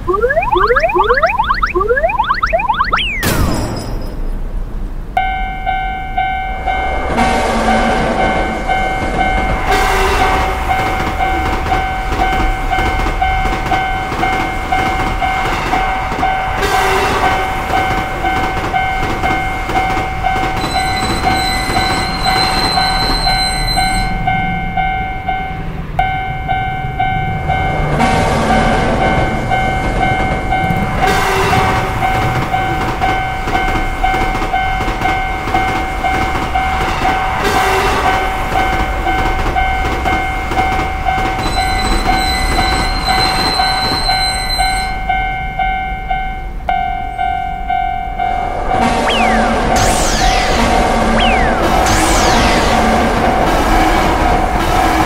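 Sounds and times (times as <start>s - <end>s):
train rumbling on rails: 4.4s - 44.2s, 47.3s - 55.0s
railroad crossing alarm ringing: 17.8s - 28.0s, 38.5s - 50.5s, 51.2s - 52.6s.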